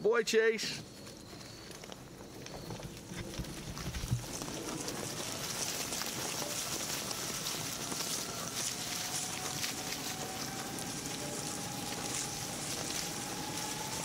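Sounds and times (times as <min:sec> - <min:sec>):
faint vehicle whine: 0:00.6 - 0:14.0
tyres hissing over grass: 0:02.9 - 0:14.0.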